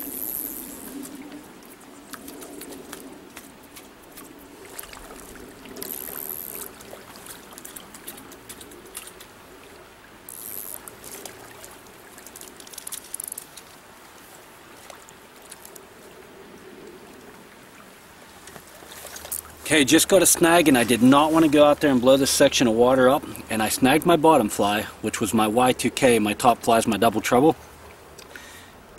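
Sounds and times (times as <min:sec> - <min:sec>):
stream water trickling: 0:00.0 - 0:28.9
small clicks: 0:12.2 - 0:13.7.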